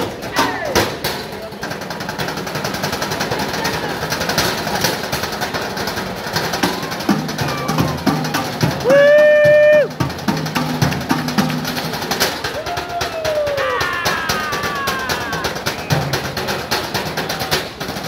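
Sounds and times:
person shouting: 0:07.4 - 0:08.1, 0:08.8 - 0:09.9, 0:12.6 - 0:15.6.

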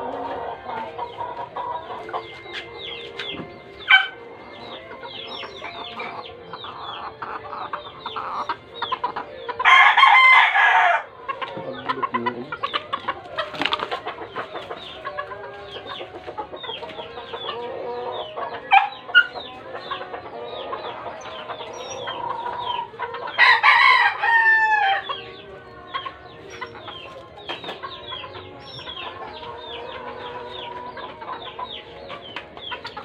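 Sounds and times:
chickens clucking: 0:00.0 - 0:33.0
rooster crowing: 0:09.6 - 0:11.1, 0:23.4 - 0:25.0.

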